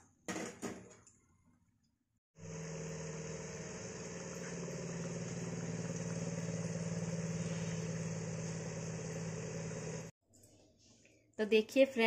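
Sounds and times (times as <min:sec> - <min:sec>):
low mechanical hum: 0:02.4 - 0:10.1.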